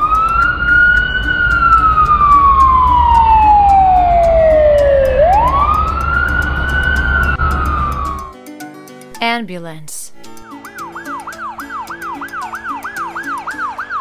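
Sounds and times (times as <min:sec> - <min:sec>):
fire engine siren wailing: 0:00.0 - 0:08.2.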